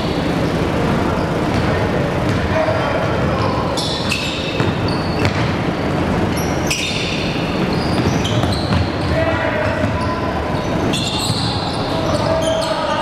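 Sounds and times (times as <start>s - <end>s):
hubbub of the hall: 0.0s - 13.0s
sneakers squeaking on floor: 0.0s - 13.0s
basketball bouncing: 1.4s - 3.6s, 4.2s - 10.2s.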